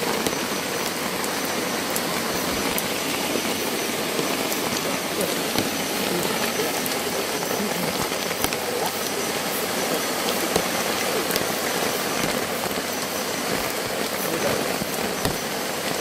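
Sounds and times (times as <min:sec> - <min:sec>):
rushing water: 0:00.0 - 0:16.0
small ticks and clicks: 0:05.5 - 0:09.2, 0:10.3 - 0:16.0.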